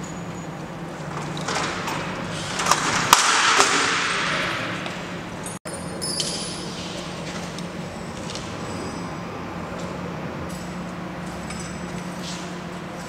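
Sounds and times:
roller shutter slats rattling: 1.0 - 4.6.

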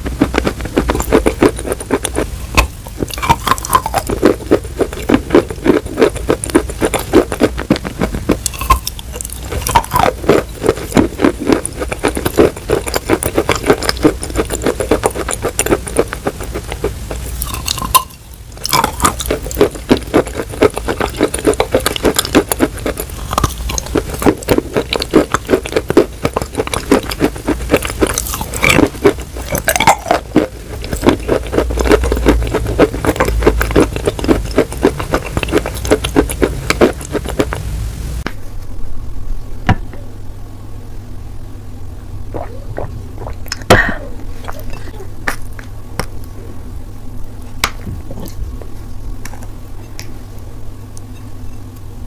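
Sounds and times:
chewing clay crunching and squishing: 0.0 - 37.6.

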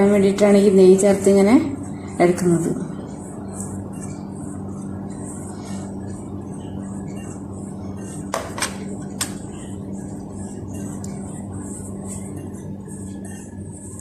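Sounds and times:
steady low hum: 0.0 - 14.0
hand rubbing flour: 9.4 - 14.0.

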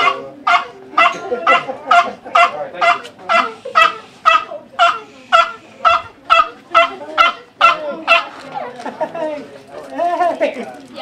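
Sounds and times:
dog barking: 0.0 - 2.2.

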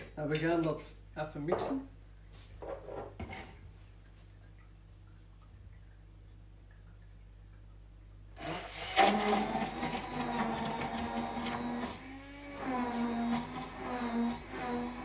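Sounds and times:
immersion blender motor whine: 8.4 - 15.0.

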